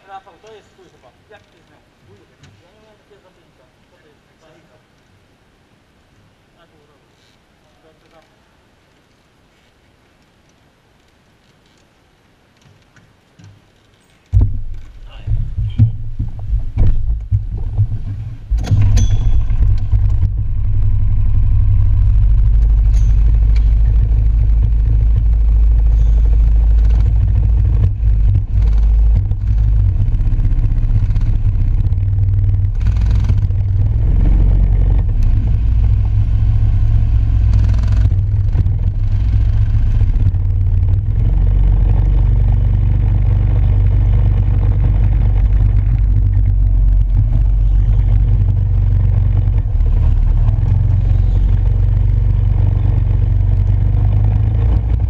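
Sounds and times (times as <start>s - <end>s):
knocks: 14.3s - 20.5s
go-kart engine rumble: 14.3s - 55.0s.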